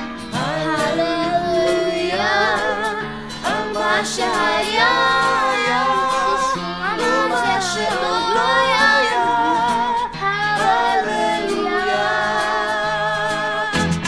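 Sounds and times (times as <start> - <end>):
song with singing and instruments: 0.0 - 14.0.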